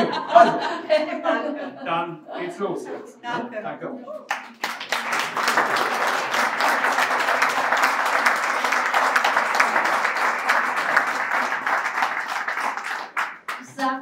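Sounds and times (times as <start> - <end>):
audience applauding: 4.3 - 14.0.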